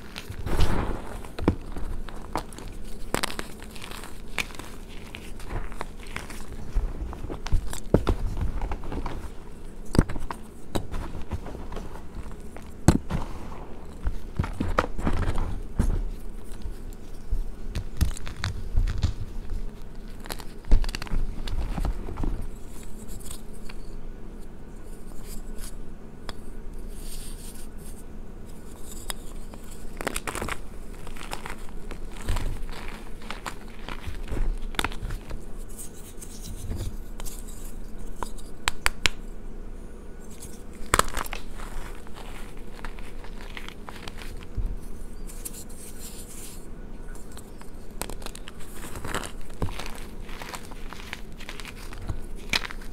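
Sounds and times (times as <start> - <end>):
chalk crunching in hands: 0.0 - 15.7, 26.8 - 38.8, 40.2 - 52.9
chalk cracking: 0.0 - 23.7, 26.8 - 39.2, 40.2 - 52.9
powdery rustling: 0.0 - 23.7, 26.8 - 39.2, 40.2 - 52.9.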